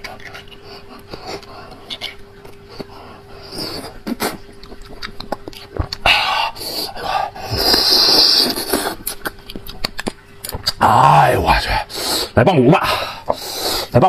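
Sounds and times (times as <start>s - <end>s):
hissing slurps: 0.0s - 9.3s, 10.7s - 14.0s
wet mouth clicks: 3.6s - 6.1s, 7.6s - 10.9s.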